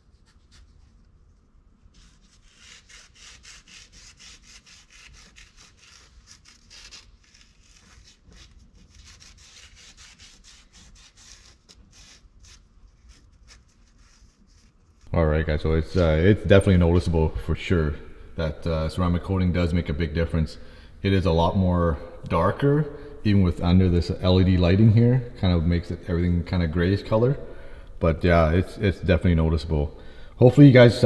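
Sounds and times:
cloth scrubbing strokes: 0:00.0 - 0:15.1.

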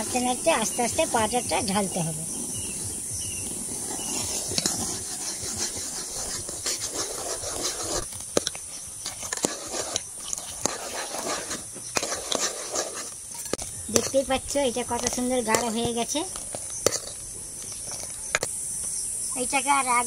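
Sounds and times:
steady hiss: 0:00.0 - 0:20.0
ladle scraping a metal pot: 0:03.8 - 0:14.2, 0:16.4 - 0:18.4.

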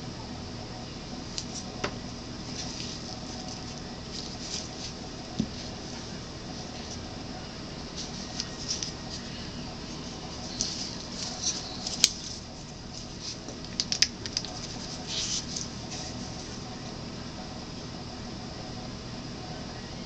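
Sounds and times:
low room hum: 0:00.0 - 0:20.0
plastic bottles rustling: 0:01.5 - 0:07.0, 0:07.9 - 0:16.4
sharp plastic clicks: 0:13.5 - 0:14.6.

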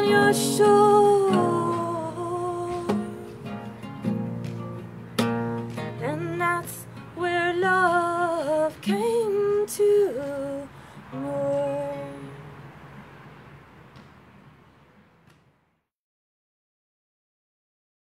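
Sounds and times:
woman singing long notes: 0:00.0 - 0:03.3, 0:06.0 - 0:12.4
acoustic guitar strums: 0:00.0 - 0:10.4, 0:11.0 - 0:14.3.

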